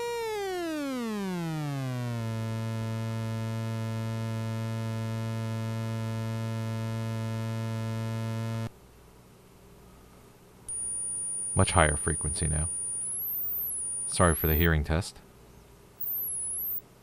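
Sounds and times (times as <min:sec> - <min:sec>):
low buzzing tone sweeping down: 0:10.7 - 0:14.7, 0:16.0 - 0:16.8.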